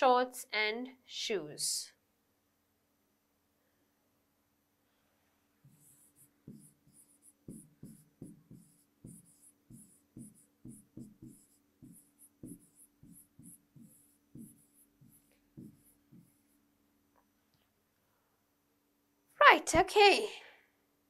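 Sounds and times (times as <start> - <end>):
pen scratching on a screen: 5.6 - 16.6.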